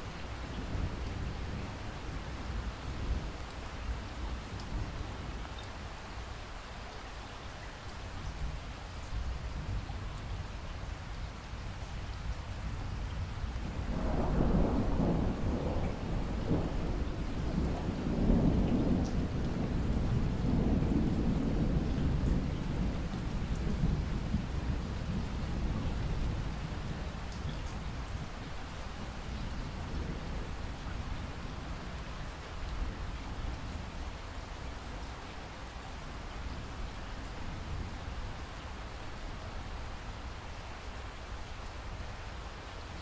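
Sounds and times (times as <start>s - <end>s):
rain falling: 0.0s - 43.0s
rolling thunder: 13.7s - 32.0s.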